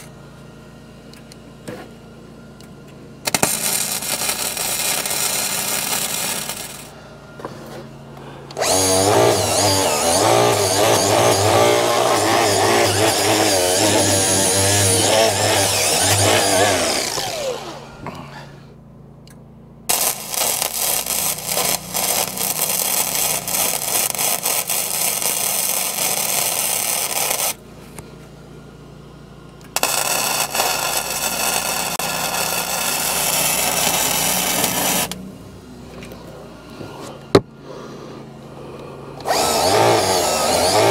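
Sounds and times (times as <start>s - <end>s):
wire welder crackling: 3.2s - 7.0s, 8.5s - 18.3s, 19.9s - 28.0s, 29.6s - 35.2s, 39.2s - 40.9s
angle grinder spinning down: 3.3s - 7.0s, 8.5s - 18.3s, 19.9s - 27.6s, 29.7s - 35.2s, 39.2s - 40.9s.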